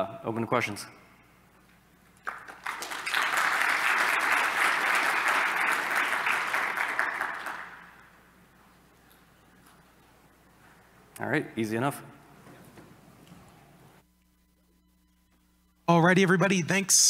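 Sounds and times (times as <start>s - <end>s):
audience applauding: 2.2s - 8.1s.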